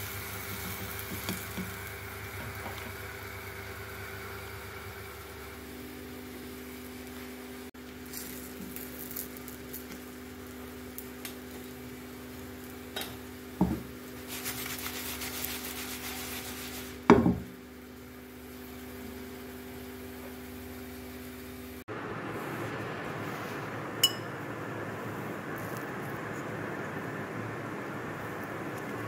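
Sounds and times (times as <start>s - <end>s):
batter sizzling in frying pan: 0.0s - 21.8s.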